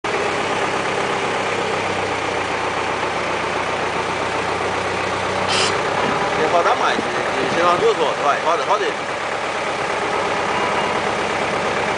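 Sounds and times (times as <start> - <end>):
engine idling: 0.0 - 11.9
brief hydraulic hiss: 5.4 - 5.8.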